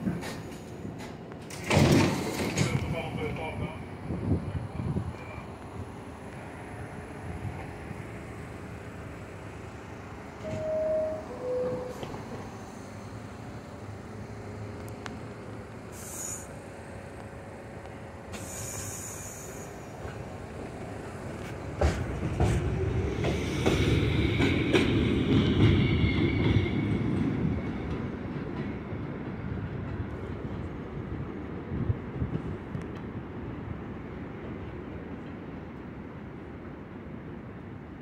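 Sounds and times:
rail-joint clicks: 0.0 - 3.2, 10.4 - 13.7, 14.6 - 16.5, 17.1 - 30.8, 32.3 - 33.2
subway train rumble: 0.0 - 38.0
high wheel squeal: 10.4 - 12.2.

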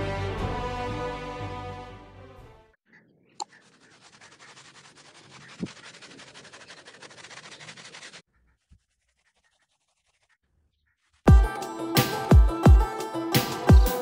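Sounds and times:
paintbrush scrubbing rough wall: 3.4 - 11.2.

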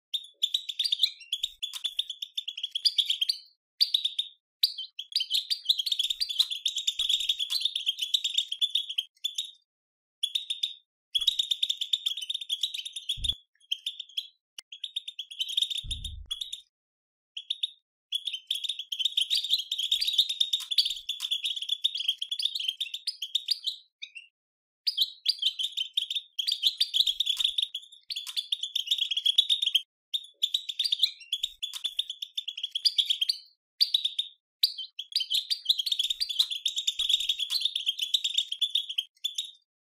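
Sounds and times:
goldfinch twittering chatter: 24.9 - 39.6.

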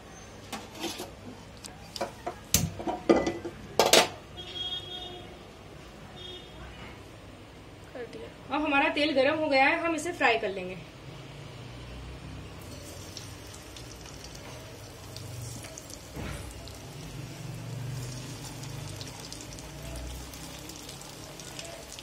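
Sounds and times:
onion rings sizzling in hot oil: 12.5 - 22.0.

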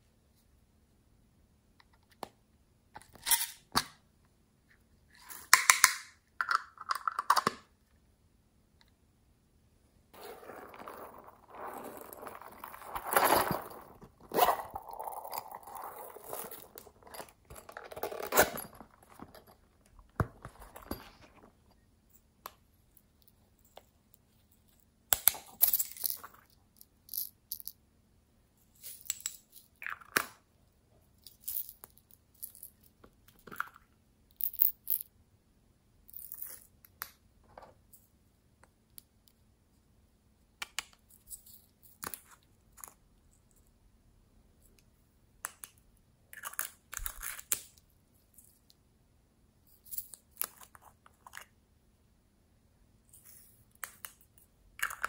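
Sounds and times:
plastic toys rustling and scraping: 10.2 - 21.8.

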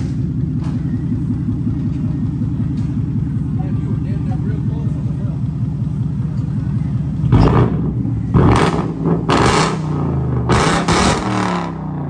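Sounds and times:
car engine revving: 5.8 - 12.0.

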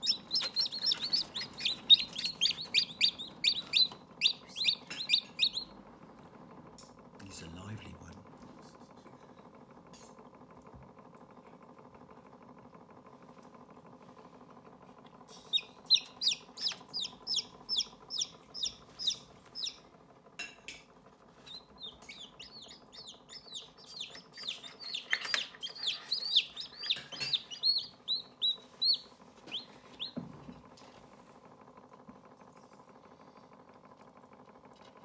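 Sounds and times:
chicks peeping: 0.0 - 5.8, 15.5 - 19.8, 21.5 - 30.2
faint steady hum: 0.0 - 35.0.

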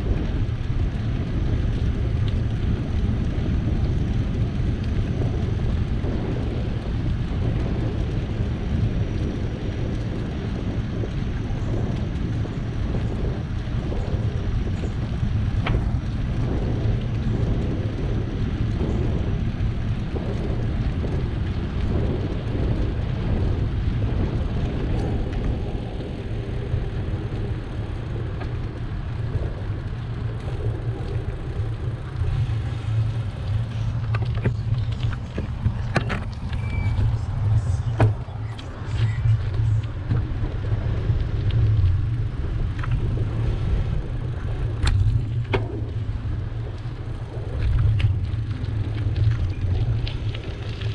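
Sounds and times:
bicycle tyres rolling: 0.0 - 50.9
wind buffeting microphone: 0.0 - 50.9.

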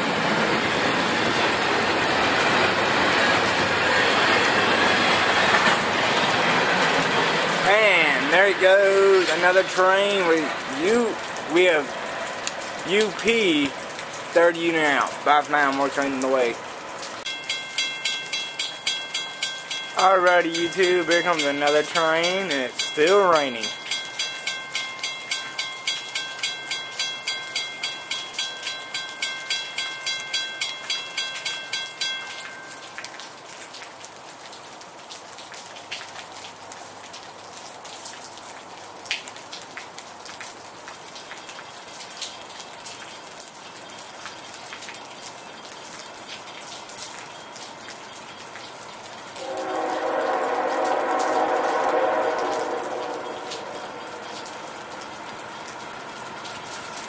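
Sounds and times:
steady rain: 0.0 - 57.0
rapid dinging bell: 17.3 - 33.0
train horn blast: 49.4 - 54.8.

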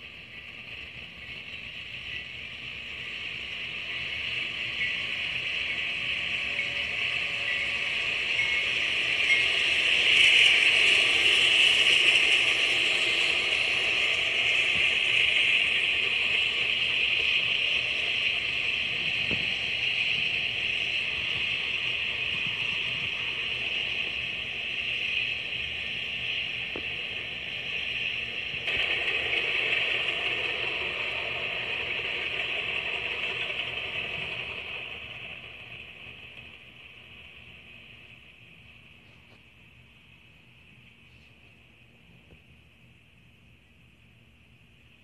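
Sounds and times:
train wheels rumbling on rail: 0.0 - 43.2.

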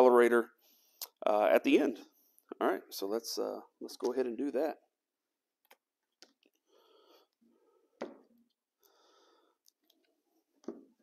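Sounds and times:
soft breaths: 6.5 - 8.0, 8.8 - 10.5.

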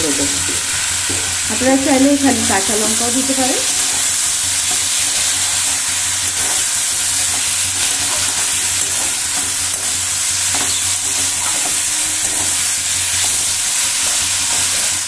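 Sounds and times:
vegetables sizzling in oil: 0.0 - 15.0
metal spatula scraping pan: 7.2 - 14.9.

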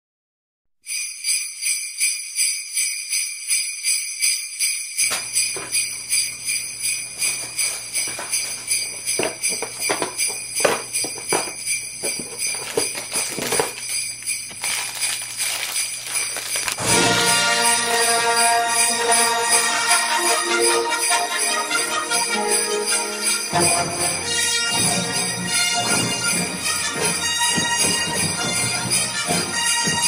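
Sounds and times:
jingle bells shaken: 0.8 - 30.0
plastic bag rustling: 10.9 - 17.2.

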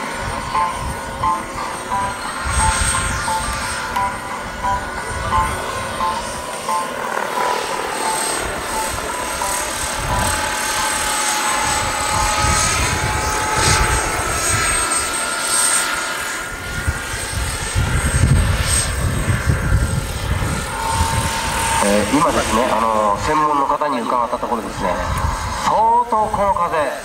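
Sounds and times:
wind buffeting microphone: 0.0 - 6.5, 8.3 - 15.4, 16.2 - 23.6, 24.6 - 26.8
helicopter rotor noise: 0.0 - 27.0
turbine whine: 0.0 - 27.0.

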